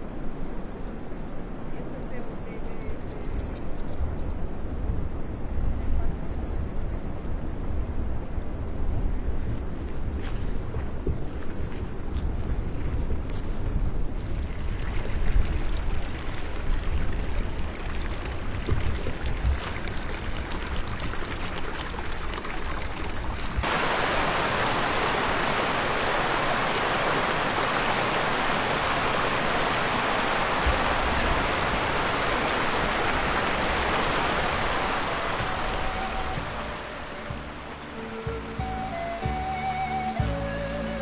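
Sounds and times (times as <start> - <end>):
wind buffeting microphone: 0.0 - 39.6
stream rushing: 14.0 - 41.0.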